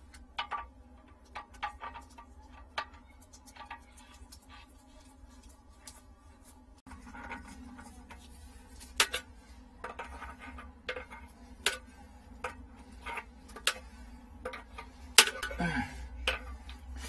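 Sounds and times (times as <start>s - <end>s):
low steady hum: 0.0s - 17.0s
scraping rusty metal rim: 6.9s - 17.0s.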